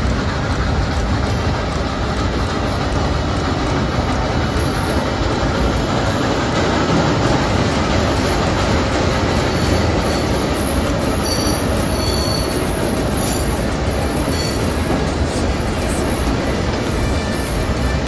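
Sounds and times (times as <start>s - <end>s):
train wheels rumbling on rails: 0.0s - 18.0s
high wheel squeals: 8.2s - 18.0s.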